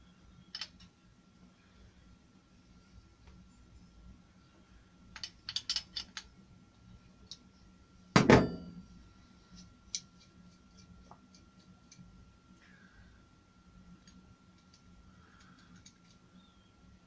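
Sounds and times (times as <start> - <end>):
light ticks of metal parts: 5.1 - 6.4, 9.5 - 12.1, 14.0 - 16.3
metallic clank with short ring: 8.2 - 8.8.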